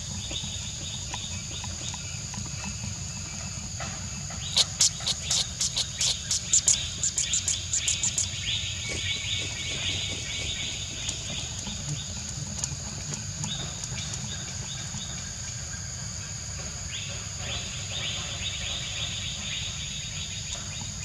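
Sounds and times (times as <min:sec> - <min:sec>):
fast pulsed chirping: 0:00.0 - 0:16.3
high insect drone: 0:00.0 - 0:21.0.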